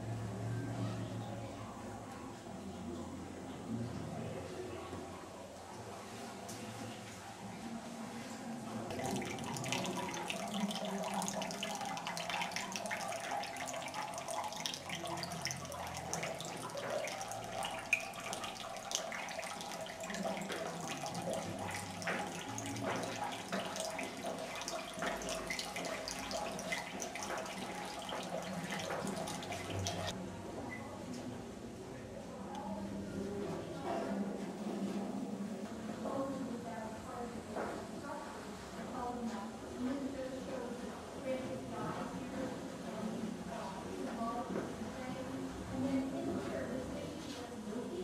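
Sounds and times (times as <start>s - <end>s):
water trickling into stone basin: 8.9s - 30.2s.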